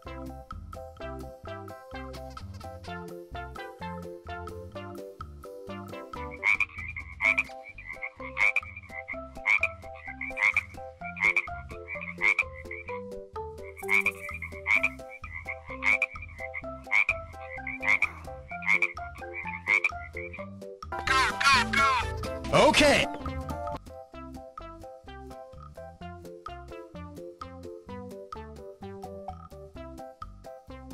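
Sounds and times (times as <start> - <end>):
toy frog electronic croaks: 6.1 - 13.0, 13.6 - 22.0.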